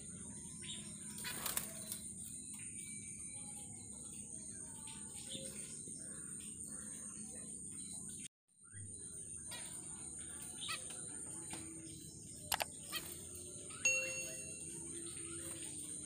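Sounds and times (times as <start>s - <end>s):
crickets chirring: 0.0s - 16.0s
faint bird chirps: 0.0s - 16.0s
mouse-click sound effects: 12.5s - 12.7s
bell chime: 13.8s - 15.1s.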